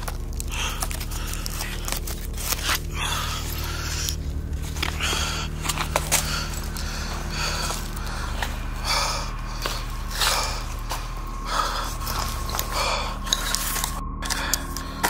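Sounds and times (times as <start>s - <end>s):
scraping and crunching: 0.0s - 15.0s
steady low hum: 0.0s - 15.0s
scattered clicks: 11.5s - 15.0s.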